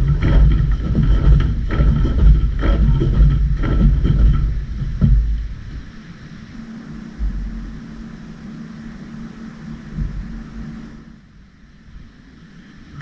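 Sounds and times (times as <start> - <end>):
battle ropes thudding: 0.0 - 5.4
heavy low rumble: 0.0 - 13.0.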